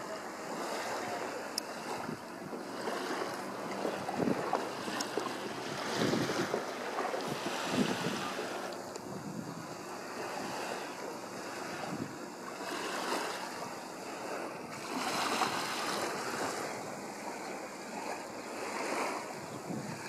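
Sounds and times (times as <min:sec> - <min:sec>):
small waves washing: 0:00.0 - 0:20.0
wind buffeting microphone: 0:00.0 - 0:20.0.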